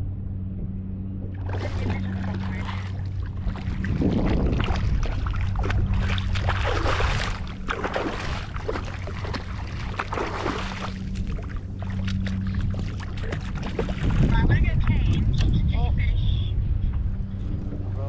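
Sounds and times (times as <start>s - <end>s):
steady low hum: 0.0s - 18.0s
fish splashing in water: 1.3s - 14.3s.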